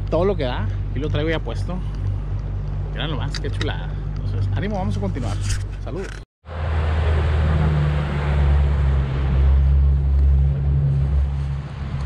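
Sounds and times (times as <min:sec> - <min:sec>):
motorboat engine humming: 0:00.0 - 0:12.0.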